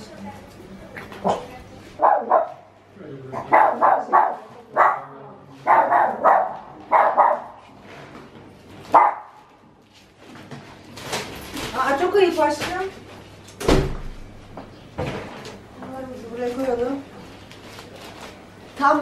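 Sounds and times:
dog barking: 0:01.2 - 0:02.7, 0:03.4 - 0:07.6, 0:08.9 - 0:09.4.

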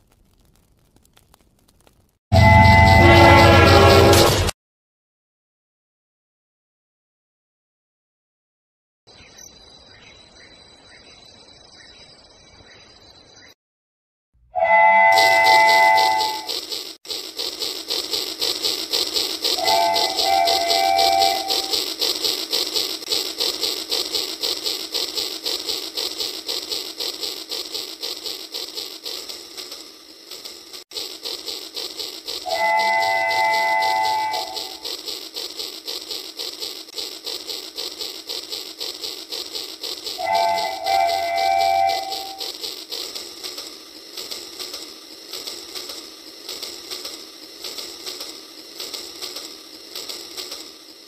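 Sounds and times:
toy train mechanical clatter: 0:02.4 - 0:04.5, 0:14.6 - 0:51.0
rhythmic clicking of wheels: 0:15.0 - 0:51.0.

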